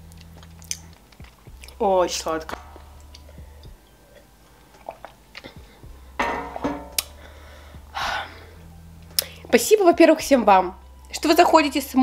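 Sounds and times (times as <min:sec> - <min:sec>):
woman sipping a drink: 0:04.1 - 0:05.6.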